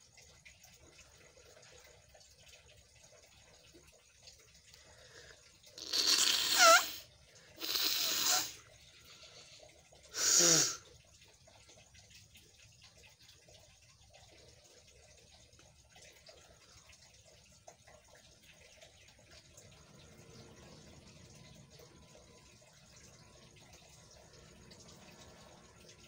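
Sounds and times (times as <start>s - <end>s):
person blowing air through nose: 5.8s - 7.0s, 7.6s - 8.6s, 10.2s - 10.8s.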